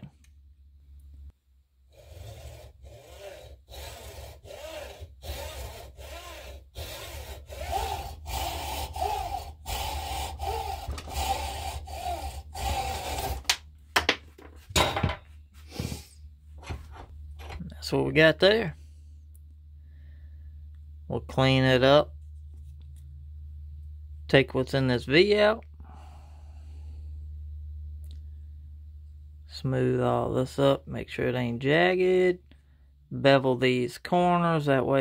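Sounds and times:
hacksaw cutting metal: 2.0s - 13.6s.

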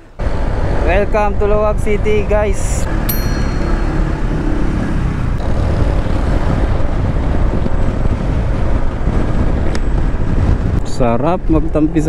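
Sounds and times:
scooter engine and tyre noise: 2.9s - 10.8s
wind buffeting microphone: 4.3s - 11.7s.

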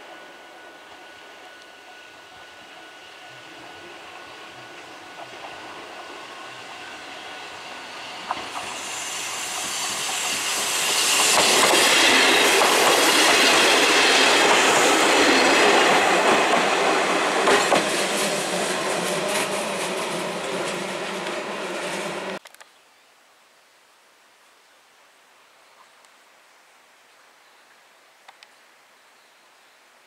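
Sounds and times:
train wheels on rails: 0.0s - 22.4s.

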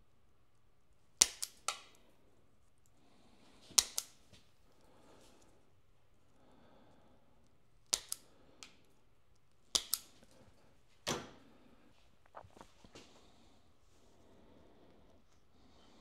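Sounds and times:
wire crimper snapping: 1.2s - 2.0s, 3.8s - 4.2s, 7.8s - 8.8s, 9.7s - 10.4s
wire handling clicks: 3.7s - 4.4s, 7.8s - 10.5s.

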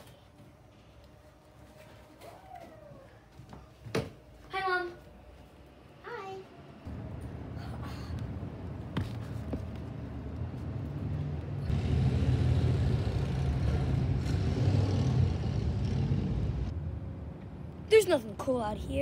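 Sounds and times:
vehicle engine rumble: 6.9s - 17.7s.

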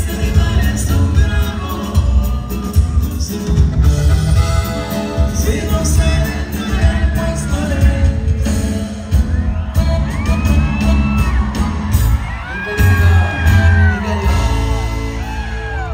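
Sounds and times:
live band with singing: 0.0s - 15.9s
crowd whooping and shouting: 8.7s - 15.9s.

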